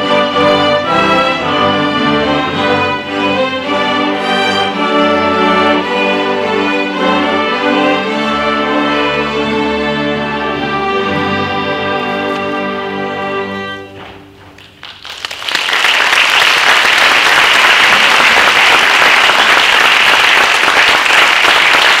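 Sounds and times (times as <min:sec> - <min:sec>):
string orchestra chord: 0:00.0 - 0:14.3
audience applause: 0:14.6 - 0:22.0.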